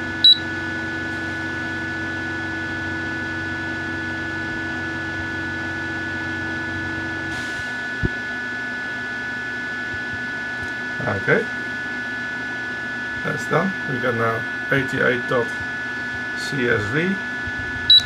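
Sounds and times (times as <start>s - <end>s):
machine hum: 0.0s - 18.0s
high whine: 16.4s - 18.0s.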